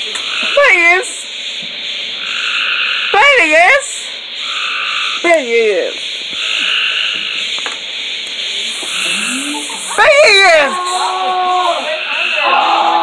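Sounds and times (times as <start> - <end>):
chorus of calling frogs: 0.0 - 13.0
wavering voice-like call: 8.5 - 13.0.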